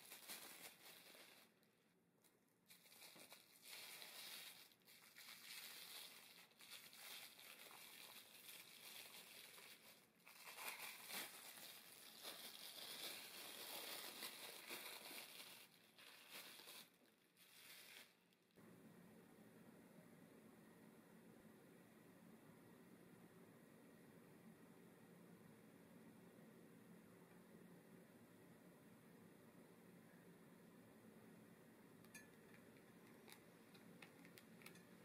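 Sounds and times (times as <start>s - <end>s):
cling film crinkling: 0.0s - 1.7s, 2.7s - 18.6s, 32.1s - 35.0s.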